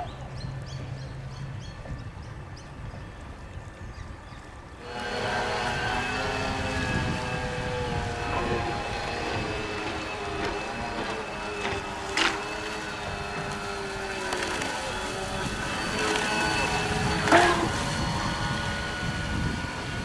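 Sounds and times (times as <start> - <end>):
model boat motors whining: 4.5 - 20.0.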